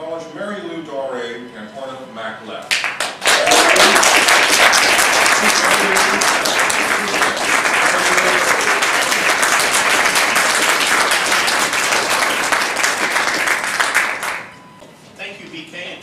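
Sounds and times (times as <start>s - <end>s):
audience applauding: 2.7s - 14.5s.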